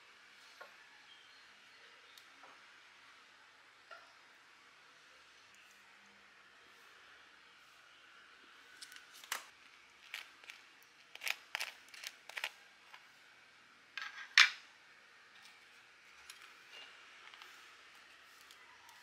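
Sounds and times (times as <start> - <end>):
sandwich scrape and click: 8.8 - 13.1
utensil scratching on toast: 10.0 - 13.1.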